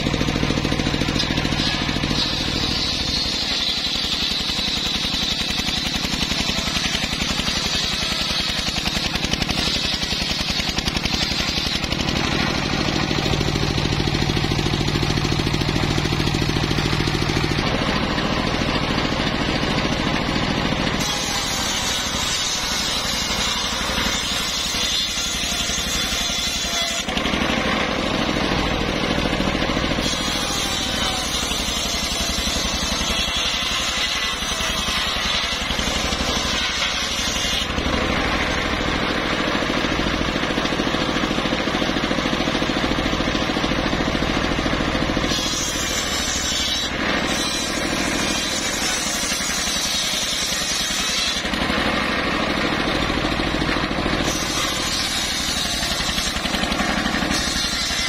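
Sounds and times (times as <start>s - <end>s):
circular saw cutting wood: 0.0s - 58.0s
saw motor drone: 0.0s - 58.0s.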